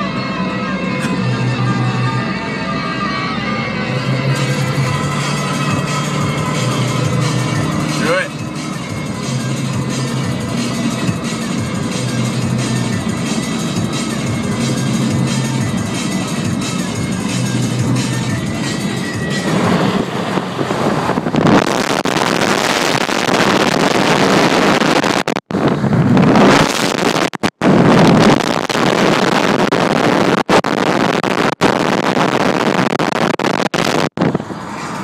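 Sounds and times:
road and traffic noise: 0.0s - 35.0s
wind buffeting microphone: 18.9s - 31.0s.

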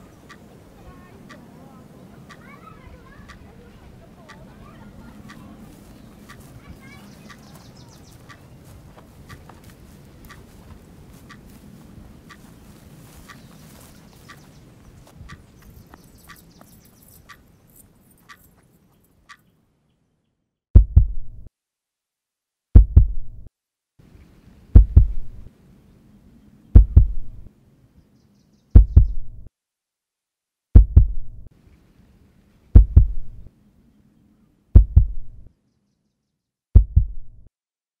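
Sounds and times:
deep double thumps: 20.8s - 21.5s, 22.8s - 23.5s, 24.8s - 25.5s, 26.8s - 27.5s, 28.8s - 29.5s, 30.8s - 31.5s, 32.8s - 33.5s, 34.8s - 35.5s, 36.8s - 37.5s.

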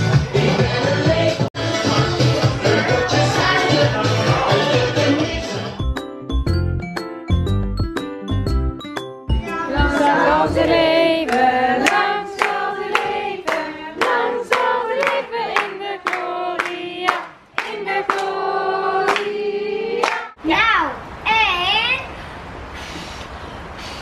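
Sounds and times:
group singing birthday song: 0.0s - 5.9s, 9.4s - 20.4s
people clapping in time: 11.2s - 18.4s, 19.0s - 19.4s, 20.0s - 20.3s.

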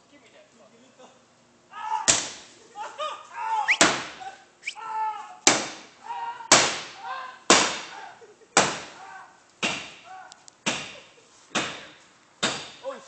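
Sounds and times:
baseball bat striking truck body: 2.1s - 2.4s, 3.7s - 4.2s, 5.5s - 5.9s, 6.5s - 7.9s, 8.6s - 9.0s, 9.6s - 10.0s, 11.6s - 12.8s.

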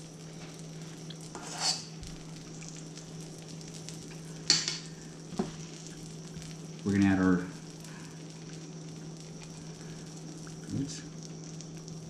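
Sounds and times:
steady low hum: 0.0s - 12.0s
metal spoon scraping a bowl: 1.3s - 1.9s.

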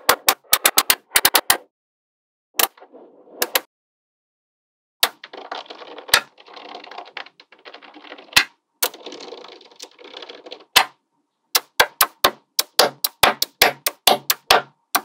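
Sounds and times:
magnetic balls snapping: 0.0s - 1.6s, 11.6s - 15.0s
magnetic balls clicking and rattling: 5.0s - 10.9s.

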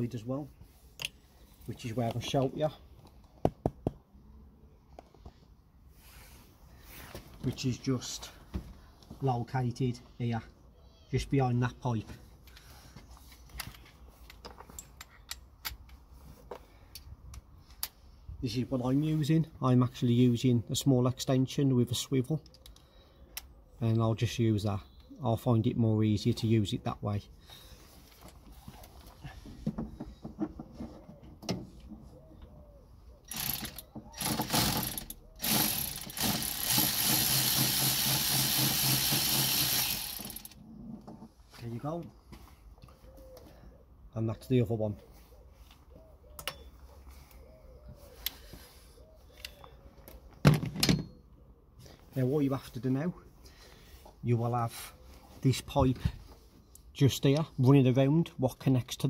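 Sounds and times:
ratchet clicking: 33.3s - 40.6s.

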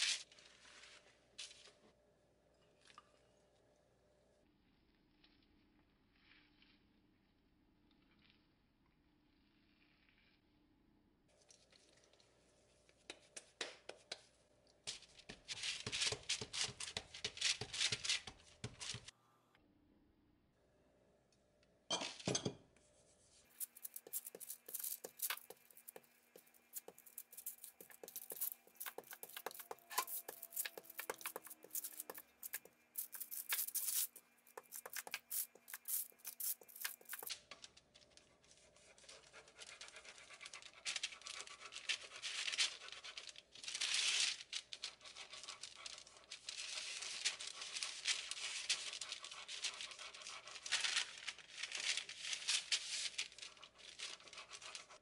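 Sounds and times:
baking paper crinkling: 0.0s - 1.8s, 14.9s - 19.1s, 23.2s - 55.0s
hands patting dough: 12.8s - 19.1s, 23.5s - 37.3s
sharp taps and scrapes: 12.9s - 14.3s, 14.9s - 19.1s, 23.5s - 37.4s.

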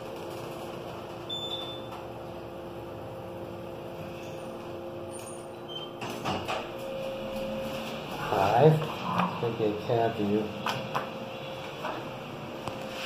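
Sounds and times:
elevator motor hum: 0.0s - 13.0s
elevator clunks: 5.2s - 9.4s.

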